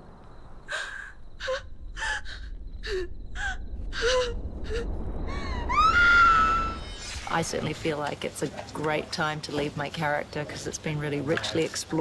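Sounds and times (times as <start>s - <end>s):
woman gasping and whimpering: 0.7s - 5.6s
low rumble: 1.2s - 8.0s.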